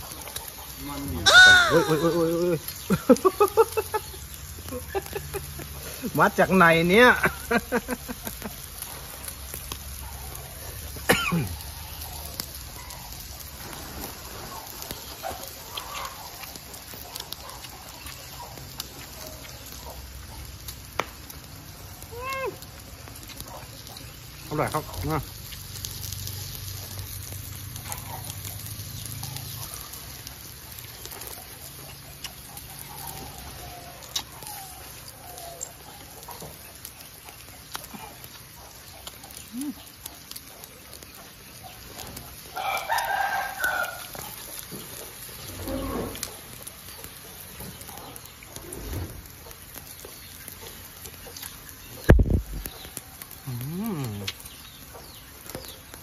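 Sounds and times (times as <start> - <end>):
quiet chewing: 0.0 - 6.2, 7.3 - 56.0
rooster crowing: 0.8 - 2.4, 42.5 - 44.4.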